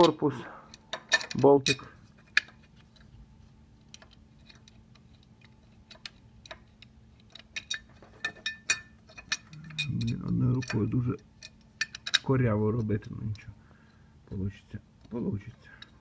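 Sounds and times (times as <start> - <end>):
metal parts clicking: 0.0 - 3.1, 3.8 - 13.4.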